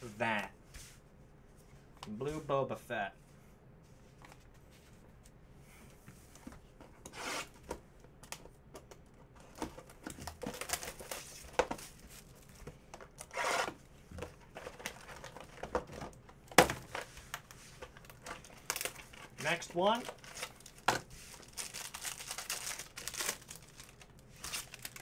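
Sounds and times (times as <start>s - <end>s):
cards and wrappers handled: 8.2s - 13.4s, 14.2s - 25.0s.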